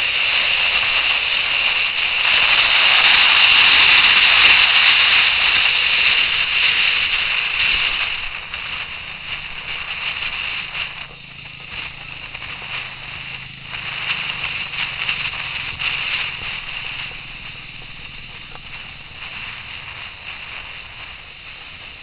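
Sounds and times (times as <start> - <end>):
faint motorcycle engine hum: 0.0 - 22.0
wind and road noise rushing: 0.0 - 22.0.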